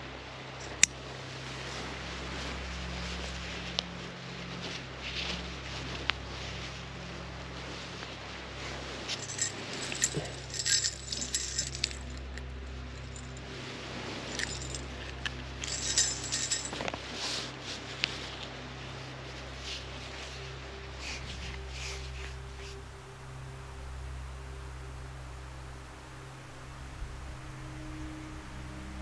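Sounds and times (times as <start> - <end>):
steady low hum: 0.0 - 29.0
small metal gear jingling: 0.6 - 0.9, 9.1 - 13.4, 14.3 - 16.9.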